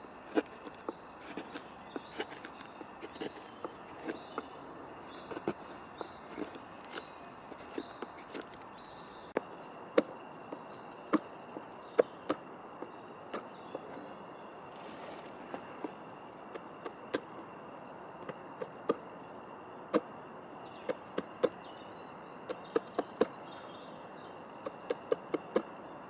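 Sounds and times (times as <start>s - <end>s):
carving gouge cutting wood: 0.3s - 4.3s.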